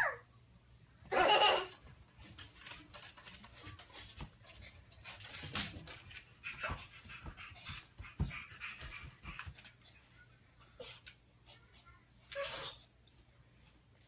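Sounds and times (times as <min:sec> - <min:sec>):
dog-like panting: 0:06.1 - 0:11.0.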